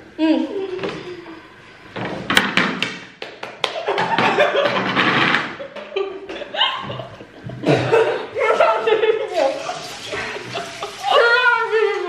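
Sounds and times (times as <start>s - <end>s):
young women laughing loudly: 3.8s - 4.8s, 5.6s - 11.6s.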